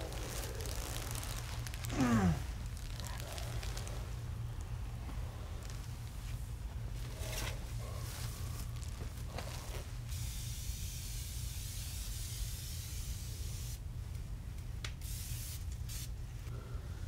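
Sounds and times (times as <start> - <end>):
aerosol spray can hissing: 15.0 - 16.1.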